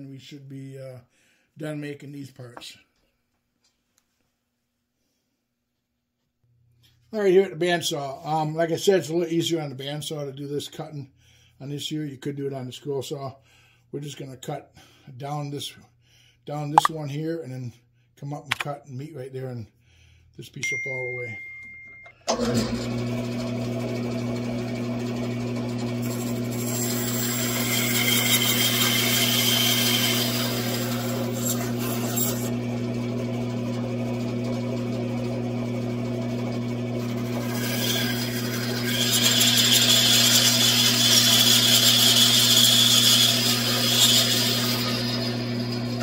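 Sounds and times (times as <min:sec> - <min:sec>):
bandsaw motor hum: 0:22.3 - 0:46.0
saw blade cutting wood: 0:25.7 - 0:32.6, 0:37.0 - 0:46.0.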